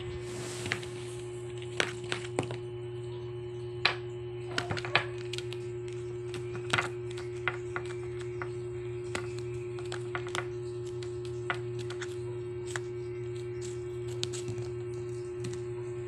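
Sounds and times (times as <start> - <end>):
low electrical hum: 0.0 - 16.0
kitten paws tapping on paper: 4.5 - 15.7.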